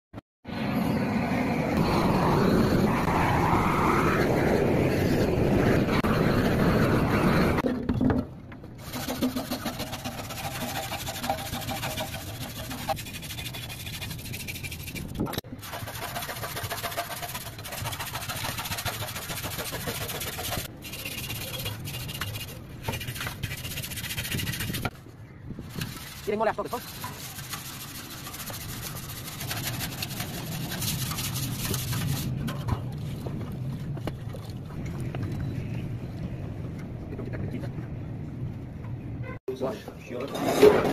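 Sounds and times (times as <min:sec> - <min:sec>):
loud rushing noise: 0:00.4 - 0:07.6
hand scraper rasping on metal: 0:08.8 - 0:24.9, 0:25.7 - 0:32.3.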